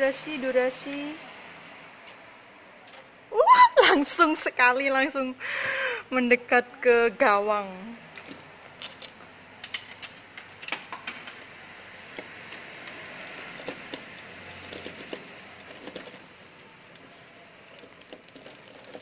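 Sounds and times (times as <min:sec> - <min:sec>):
claw carriage whirring: 0:11.4 - 0:19.0.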